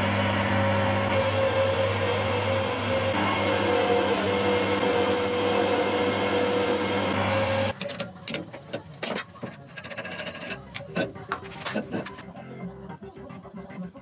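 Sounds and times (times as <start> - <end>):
metal lathe humming: 0.0 - 12.2.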